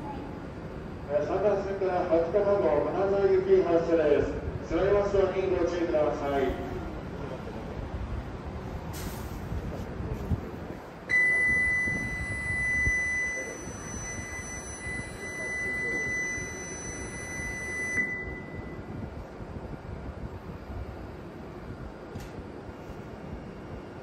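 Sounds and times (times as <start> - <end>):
platform departure buzzer: 11.1 - 18.9.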